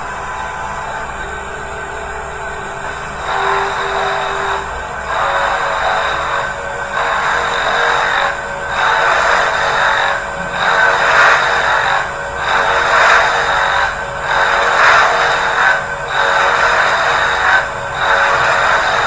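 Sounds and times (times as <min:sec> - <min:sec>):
high spindle whine: 0:00.0 - 0:19.0
milling cutter hiss: 0:00.0 - 0:19.0.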